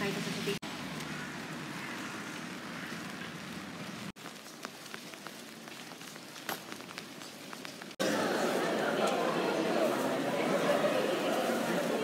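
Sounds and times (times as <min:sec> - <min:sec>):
rain falling: 0:00.0 - 0:12.0
raindrops tapping: 0:00.6 - 0:08.0.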